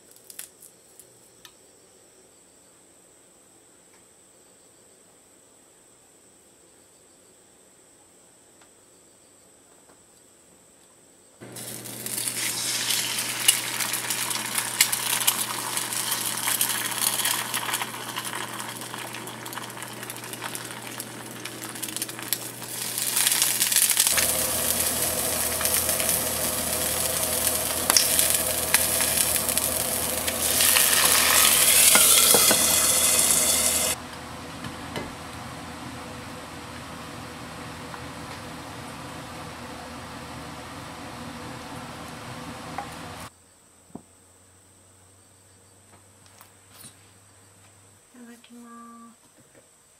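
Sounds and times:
egg sizzling in frying pan: 0:11.4 - 0:34.0.

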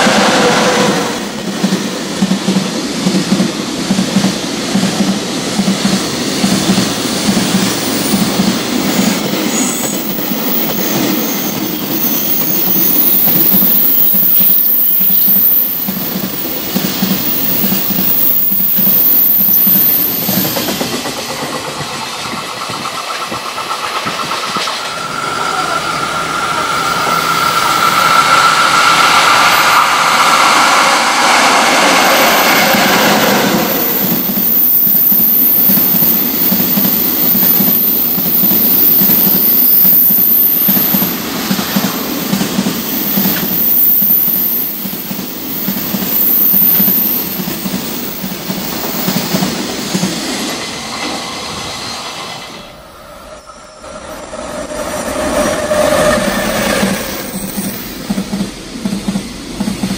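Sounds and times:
electric locomotive whine: 0:00.0 - 0:59.9
high wheel squeal: 0:17.2 - 0:20.7, 0:24.8 - 0:41.0, 0:42.9 - 0:44.9, 0:50.8 - 0:58.0.

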